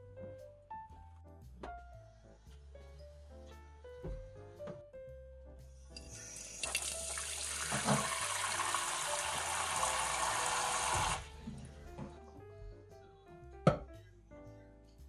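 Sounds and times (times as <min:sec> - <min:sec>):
faucet pouring into glass bowl: 0:06.0 - 0:11.3.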